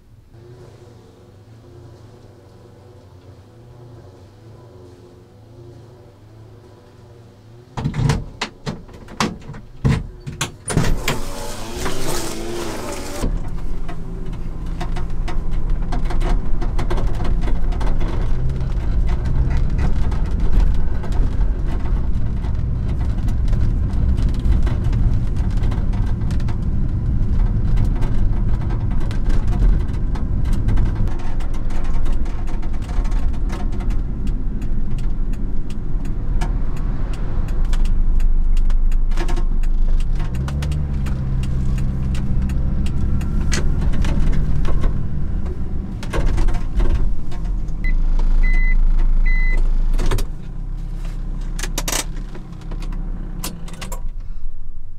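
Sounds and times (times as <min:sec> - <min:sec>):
road noise: 0:00.0 - 0:54.9
truck engine running: 0:10.8 - 0:53.7.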